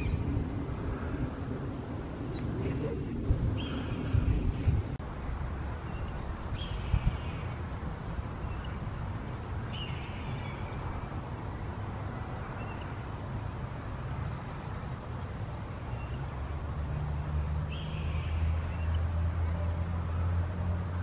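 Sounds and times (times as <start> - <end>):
steady low rumble: 0.0 - 15.2.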